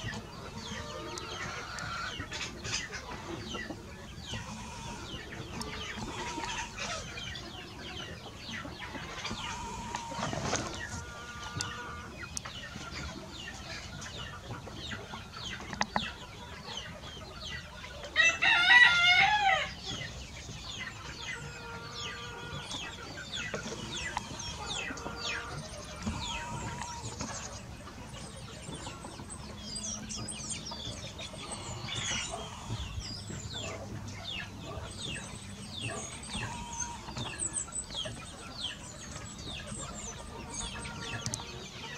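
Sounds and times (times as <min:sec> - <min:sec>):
chickens clucking: 0:00.0 - 0:41.9
rooster crowing: 0:18.2 - 0:19.7.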